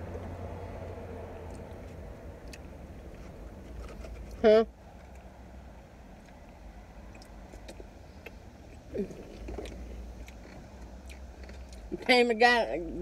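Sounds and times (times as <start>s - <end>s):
low vehicle rumble: 0.0s - 13.0s
chewing: 6.2s - 12.0s.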